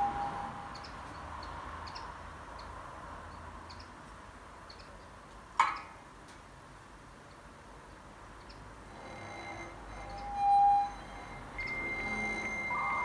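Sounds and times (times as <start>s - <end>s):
wine glass singing tone: 0.0s - 0.7s, 9.0s - 13.0s.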